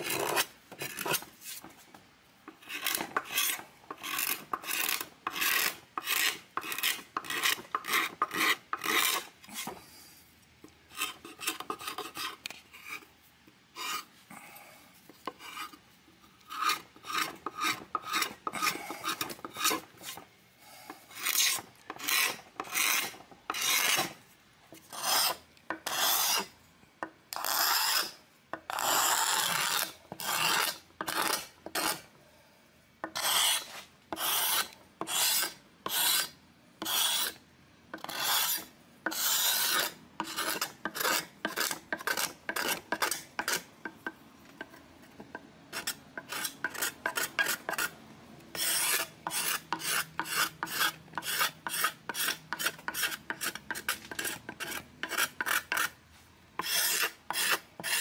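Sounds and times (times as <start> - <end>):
scraper rasping paint off wood: 56.6 - 58.0.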